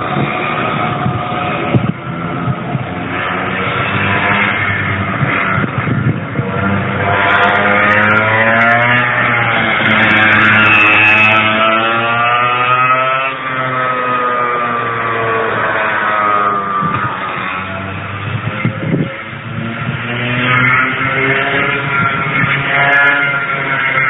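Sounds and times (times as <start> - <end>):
two-stroke kart engine revving: 0.0 - 24.0.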